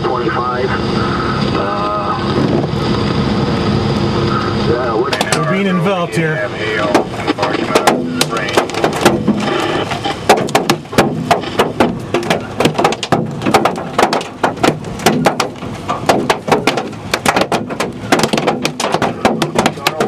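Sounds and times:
rain rushing: 0:05.0 - 0:20.0
hail clattering on car roof: 0:06.9 - 0:20.0.

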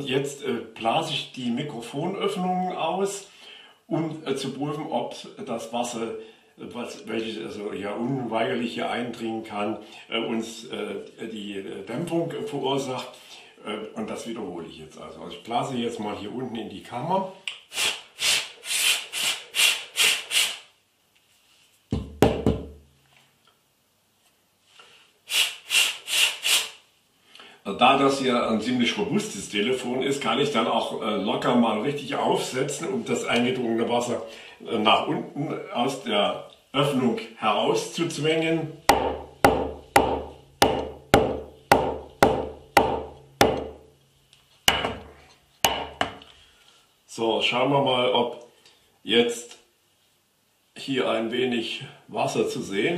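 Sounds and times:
puffs of breath into microphone: 0:03.3 - 0:03.9, 0:17.7 - 0:20.7, 0:24.6 - 0:27.6
phone knocking on hard surface: 0:21.9 - 0:22.8.

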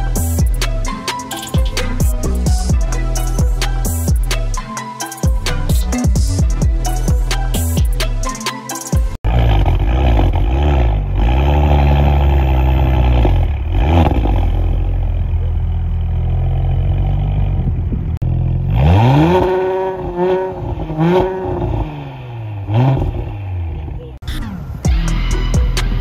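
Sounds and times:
car engine idling and revving: 0:00.0 - 0:26.0.

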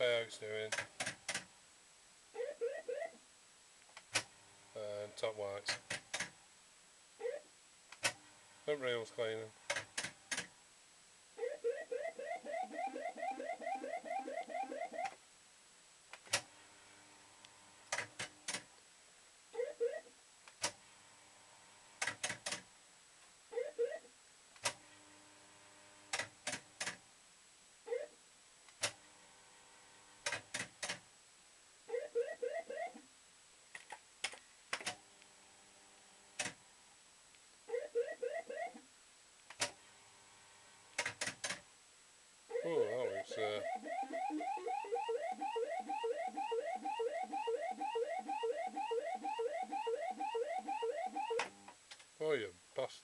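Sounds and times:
rising electronic bleep: 0:42.6 - 0:51.4.

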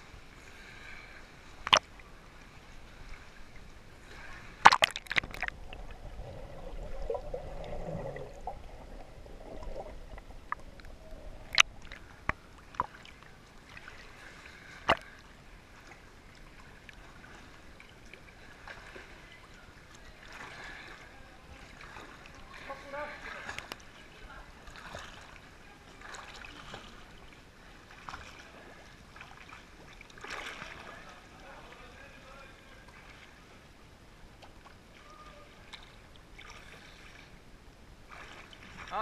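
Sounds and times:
water sloshing and gurgling: 0:00.0 - 0:39.0
muffled underwater swell: 0:02.0 - 0:12.4.

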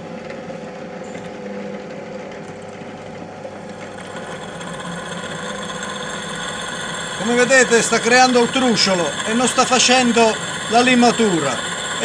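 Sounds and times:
drill press boring into steel: 0:03.7 - 0:12.0.

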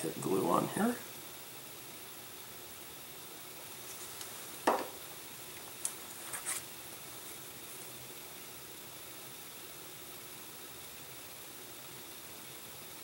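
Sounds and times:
faint steady hiss: 0:00.0 - 0:13.0
sharp tap: 0:04.7 - 0:05.0.

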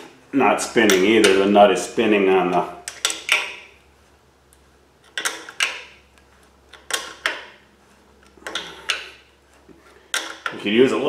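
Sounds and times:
wrench clinking on metal nut: 0:08.2 - 0:09.2, 0:10.1 - 0:10.6.

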